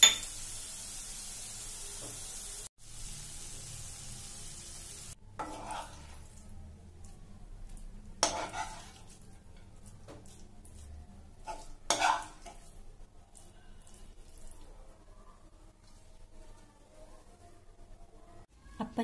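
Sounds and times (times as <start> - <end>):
spoon clinking on steel dish: 0.0 - 0.3
metal spoon scraping pan: 5.4 - 6.3, 8.2 - 12.8.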